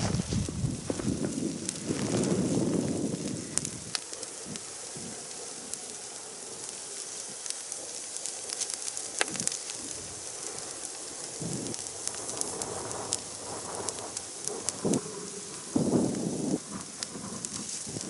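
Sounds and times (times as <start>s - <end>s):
brush fire crackling: 0.0s - 18.0s
sharp pops of burning wood: 0.0s - 18.0s.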